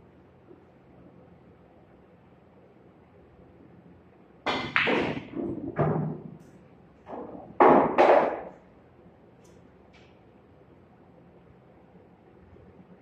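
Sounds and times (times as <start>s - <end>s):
cue striking ball: 4.5s - 6.4s, 7.1s - 8.6s
pool balls knocking together: 4.5s - 6.4s, 7.0s - 8.6s.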